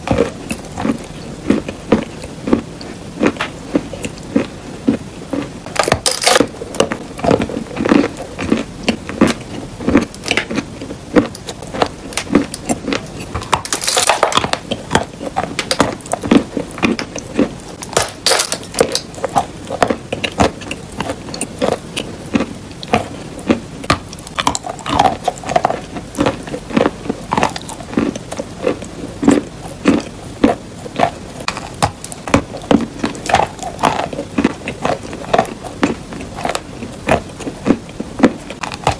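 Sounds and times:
chalk being chewed and crunched: 0.1 - 38.9.

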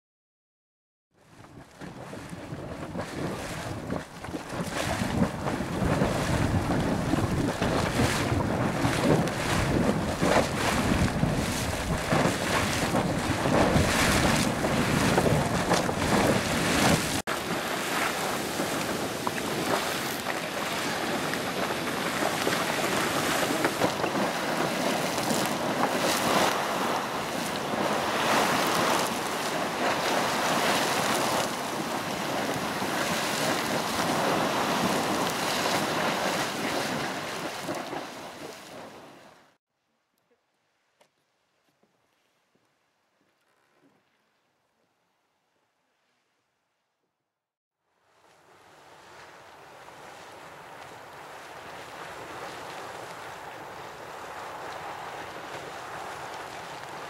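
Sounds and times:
wind rumble on microphone: 1.4 - 38.1
geyser water splashing hiss: 3.0 - 39.0.

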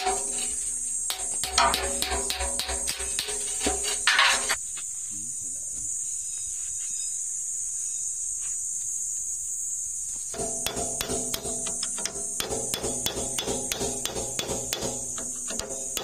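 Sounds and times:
hammer blows on steel shaft: 0.0 - 4.6, 10.4 - 16.0.

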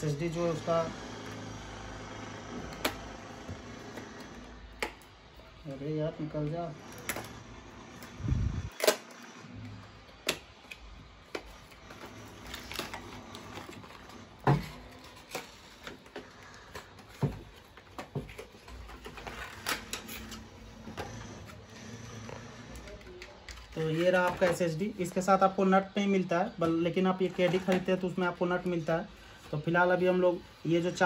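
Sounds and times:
cardboard and plastic packaging crackling: 10.1 - 30.0.

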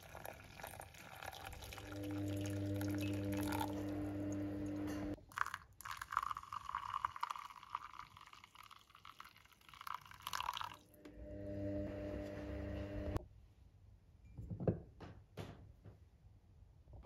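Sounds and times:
hot water pouring onto coffee: 0.0 - 10.9.

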